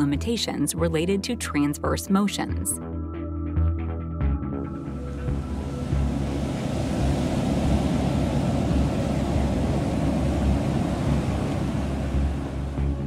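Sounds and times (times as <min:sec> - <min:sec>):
water rushing and churning: 0:05.2 - 0:13.0.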